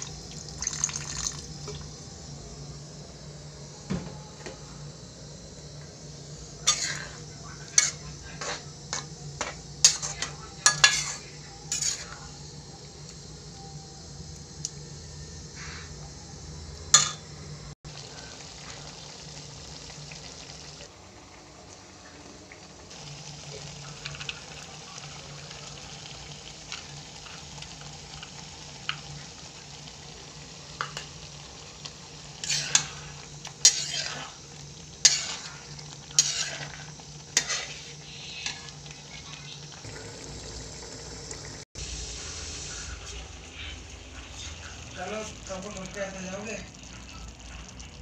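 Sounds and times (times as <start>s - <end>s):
low sizzle: 0.0s - 48.0s
metal spatula scraping pan: 6.6s - 7.2s, 9.9s - 12.1s, 32.4s - 34.3s, 35.0s - 38.6s.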